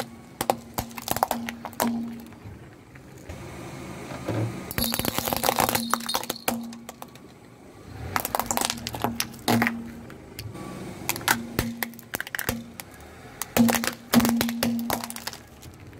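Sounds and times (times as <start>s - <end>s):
plastic cracking under car tyre: 0.0s - 2.4s, 8.1s - 10.0s, 11.1s - 15.9s.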